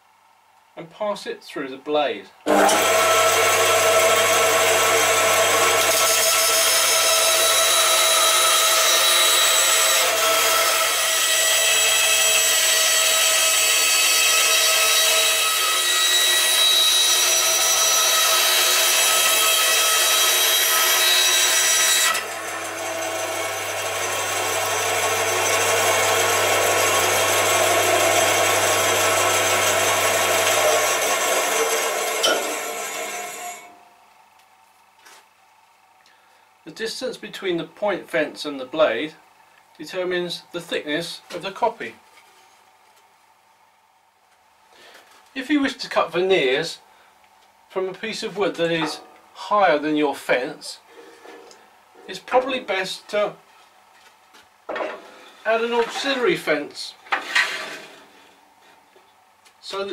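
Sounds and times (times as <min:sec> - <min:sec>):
band saw cutting wood: 0:02.5 - 0:33.8, 0:48.6 - 0:49.0, 0:55.5 - 0:56.4.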